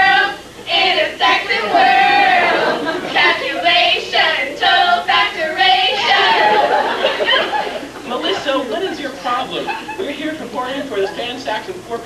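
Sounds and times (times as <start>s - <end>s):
voices singing together: 0.0s - 8.2s.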